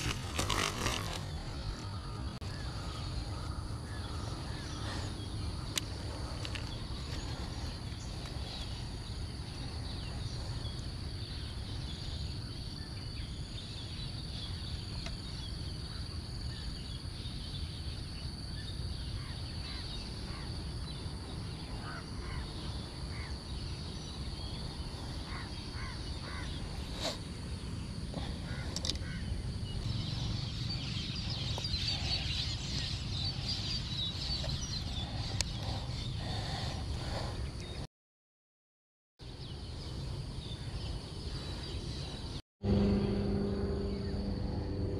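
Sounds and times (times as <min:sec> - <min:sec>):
high-pitched drone: 0:42.6 - 0:44.9.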